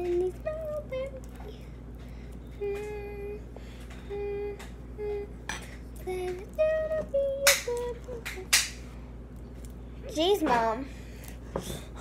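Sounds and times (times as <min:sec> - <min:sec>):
girl humming: 0:02.5 - 0:08.5.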